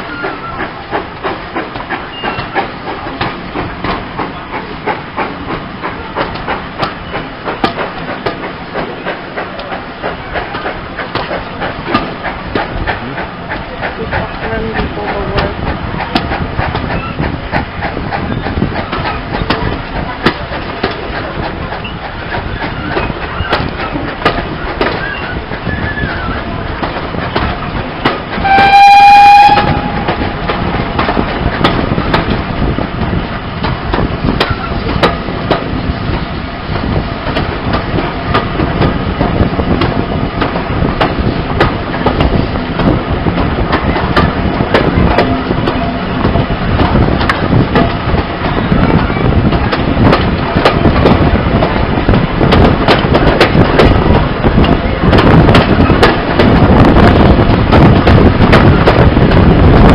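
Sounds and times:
train coaches rumbling: 0.0 - 59.9
wheels clattering over rail joints: 0.0 - 59.9
steam locomotive whistle: 28.4 - 30.2.

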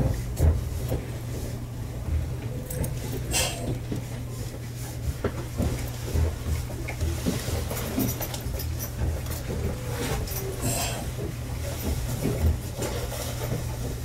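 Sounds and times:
electric train equipment humming: 8.6 - 14.0.

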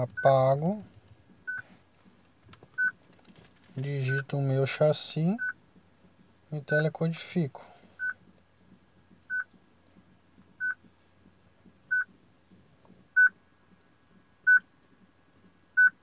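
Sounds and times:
car radio beeping: 0.0 - 1.7, 2.7 - 3.0, 5.3 - 5.6, 8.0 - 8.2, 9.3 - 9.6, 10.6 - 10.8, 11.9 - 12.1, 13.2 - 13.4, 15.8 - 16.0.

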